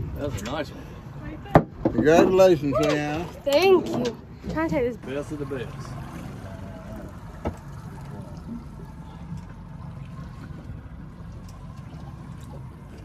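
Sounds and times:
water lapping against hull: 0.0 - 13.0
steady low rumble: 5.7 - 13.0.

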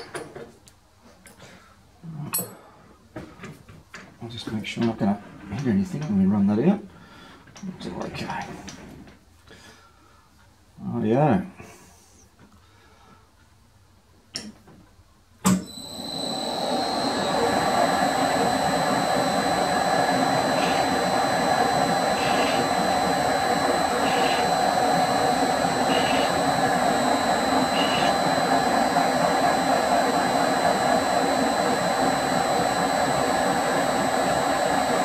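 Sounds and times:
metal lathe humming: 15.7 - 35.0.

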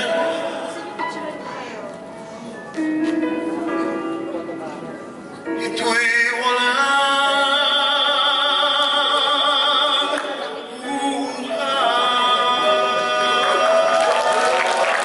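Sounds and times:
man singing a ballad: 0.0 - 0.8, 5.5 - 14.4.

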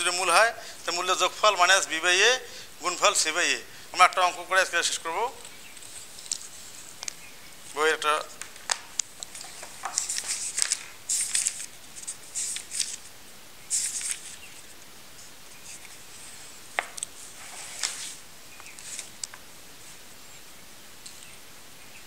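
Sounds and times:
paper rustling: 4.0 - 20.0
book pages turning: 5.4 - 13.1, 13.7 - 14.8, 15.5 - 19.4.

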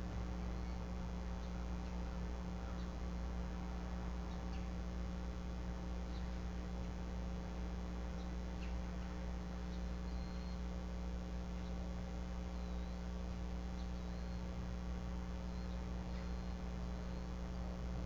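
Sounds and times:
electrical mains hum: 0.0 - 18.0
faint high chirps: 9.6 - 10.7, 12.5 - 13.2, 13.8 - 14.5, 15.4 - 17.8.

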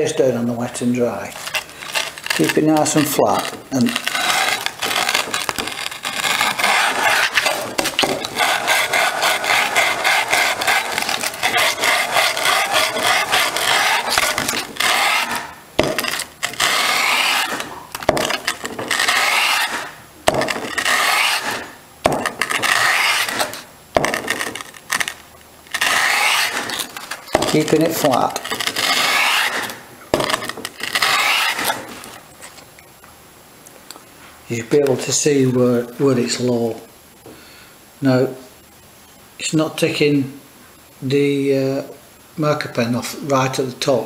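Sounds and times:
metal scraping on sandpaper: 0.8 - 32.6.

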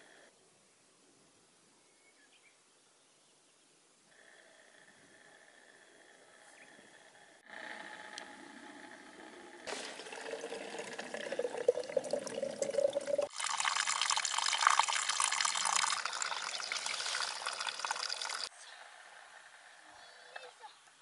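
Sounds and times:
water splashing onto rocks: 9.7 - 10.6
water filling a bottle: 9.7 - 18.5.

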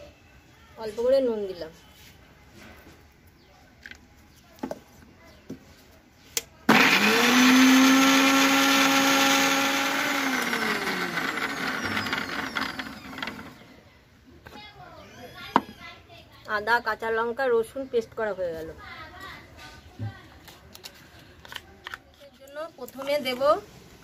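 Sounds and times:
mixer grinder motor whine: 6.7 - 13.6.

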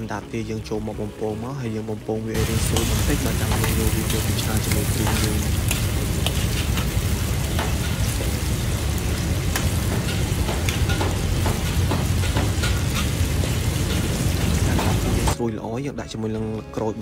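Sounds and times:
deep-frying sizzle with pops: 2.3 - 15.4.

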